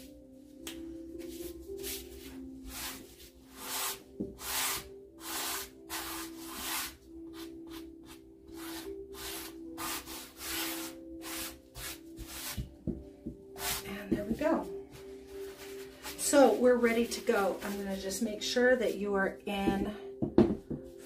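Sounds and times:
hands swishing paint on canvas: 0:00.7 - 0:13.0, 0:13.6 - 0:17.9.

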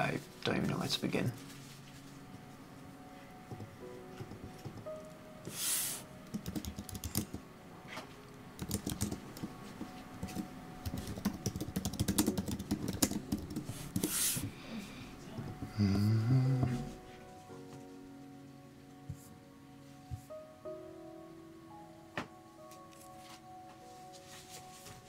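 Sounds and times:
keyboard keys clacking: 0:03.4 - 0:05.6, 0:06.2 - 0:07.4, 0:08.6 - 0:14.6.

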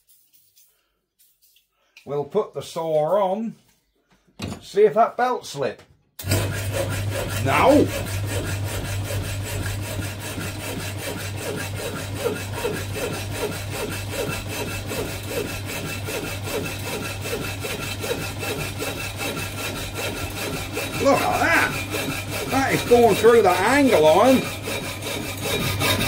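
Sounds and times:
electric motor hum: 0:06.2 - 0:26.0
hacksaw blade rasping on metal: 0:06.3 - 0:26.0.

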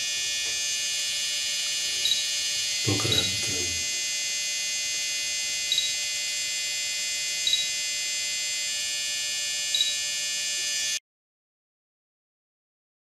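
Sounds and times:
high-pitched electrical buzz: 0:00.0 - 0:11.0
short high beeps: 0:05.7 - 0:06.0, 0:07.5 - 0:07.8, 0:09.8 - 0:10.0.

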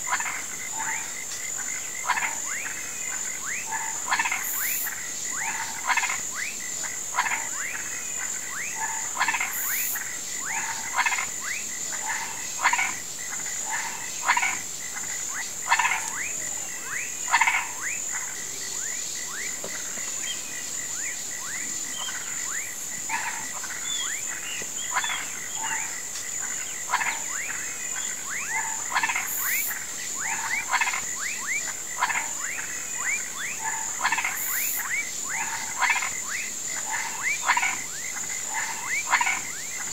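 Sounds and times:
frogs and toads croaking: 0:00.0 - 0:39.9.

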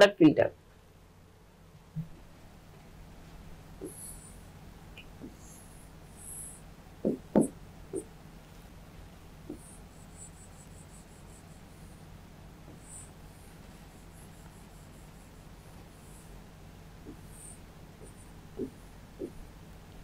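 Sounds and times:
faint steady hum: 0:00.0 - 0:20.0
pen squeaking on writing board: 0:03.8 - 0:04.3.

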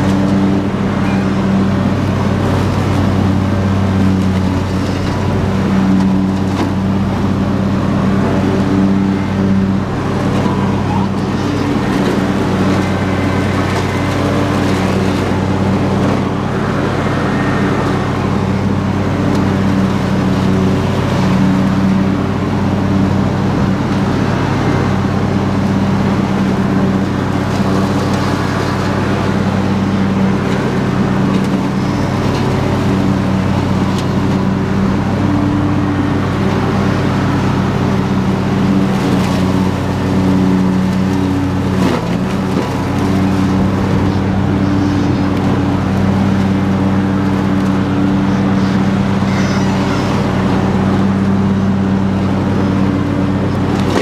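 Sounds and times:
lawn tractor engine running: 0:00.0 - 0:54.0
mower deck cutting weeds: 0:00.0 - 0:54.0.

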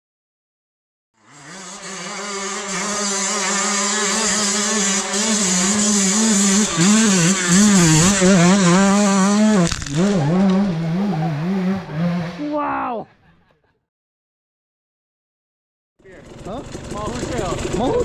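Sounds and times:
dirt bike engine revving: 0:01.2 - 0:12.6, 0:16.0 - 0:18.0.

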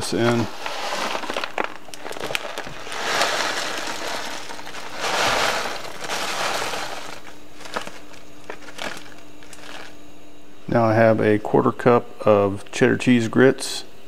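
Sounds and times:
dry pasta pouring rattle: 0:00.0 - 0:10.0.

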